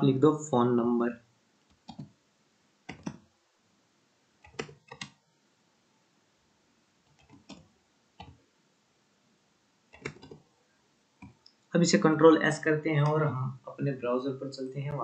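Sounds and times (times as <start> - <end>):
keyboard key clicks: 10.0 - 10.4.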